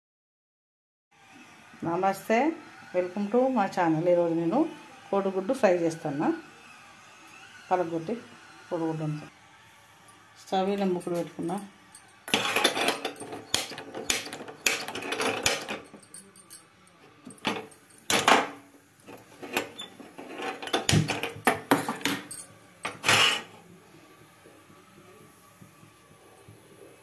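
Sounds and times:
metal cookware clinking and knocking: 12.3s - 16.2s, 17.3s - 23.6s.

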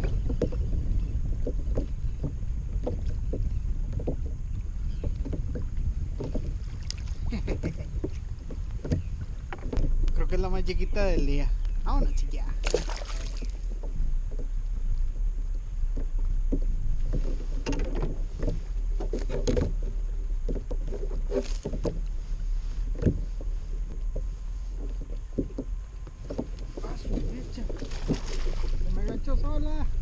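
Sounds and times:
water lapping against kayak hull: 0.0s - 30.0s
wind rumble on microphone: 0.0s - 30.0s
sharp knocks on hull: 1.3s - 4.4s, 5.0s - 6.9s, 7.6s - 10.1s, 11.9s - 14.5s, 15.9s - 22.0s, 22.9s - 23.3s.

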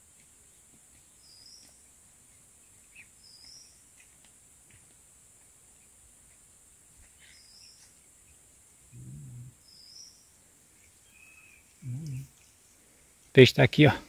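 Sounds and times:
low voice-like hum: 11.8s - 12.4s.

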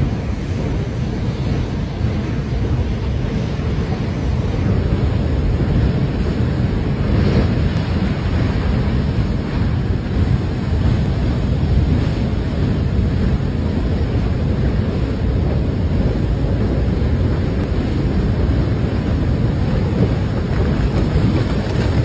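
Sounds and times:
muddy water and gravel rushing: 18.2s - 22.0s.

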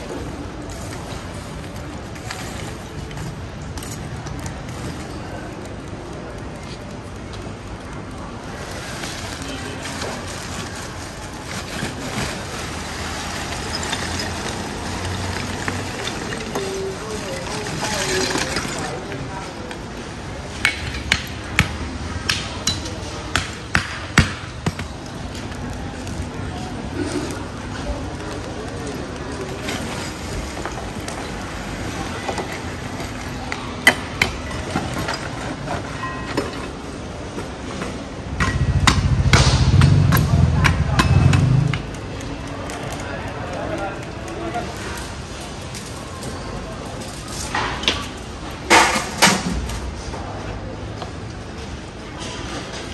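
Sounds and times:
plastic bags rustling: 0.0s - 20.5s, 24.5s - 38.0s
charcoal clattering onto metal: 9.0s - 19.3s, 48.6s - 49.8s.

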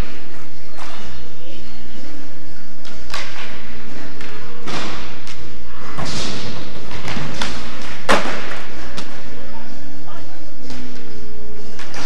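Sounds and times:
skateboard wheels rolling: 0.0s - 10.0s
skateboard clacking and thudding: 2.7s - 9.4s
skateboard slamming on floor: 4.2s - 9.2s.

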